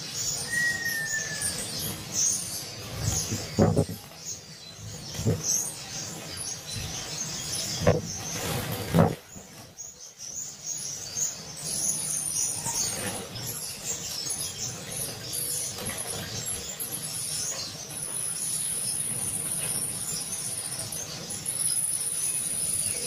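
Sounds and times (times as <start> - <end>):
finches chirping: 0.0 - 23.0.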